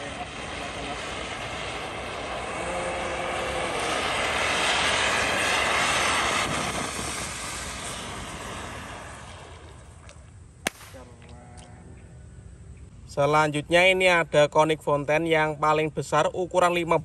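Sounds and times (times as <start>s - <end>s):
firework fountain hissing: 0.0s - 11.1s.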